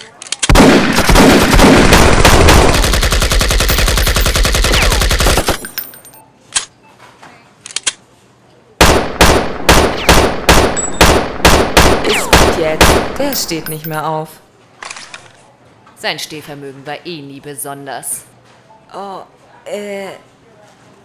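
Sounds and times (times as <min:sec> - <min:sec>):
single gunshots: 0:00.5 - 0:05.6, 0:08.8 - 0:13.3
automatic gunfire burst: 0:00.5 - 0:05.7.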